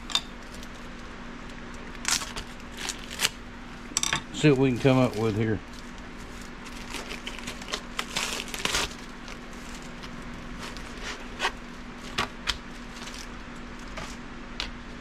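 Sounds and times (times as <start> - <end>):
steady low hum: 0.0 - 15.0
plastic bag crinkling: 2.0 - 3.4, 4.3 - 14.0.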